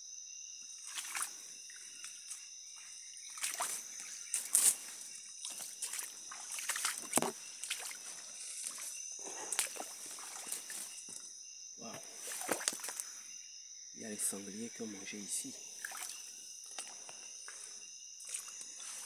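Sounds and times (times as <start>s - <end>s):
high-pitched insect drone: 0.0s - 19.0s
footsteps splashing through stream: 0.8s - 1.4s, 2.0s - 11.3s, 12.2s - 13.0s, 15.8s - 19.0s.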